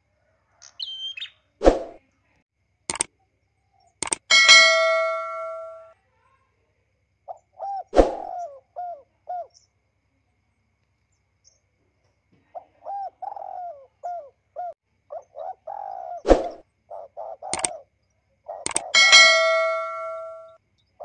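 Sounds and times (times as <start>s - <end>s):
bird calling: 0.6s - 1.4s, 7.3s - 9.7s, 12.4s - 20.6s.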